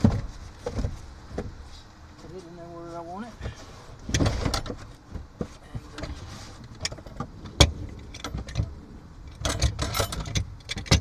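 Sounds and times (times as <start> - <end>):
rattling clatter: 5.7 - 11.0.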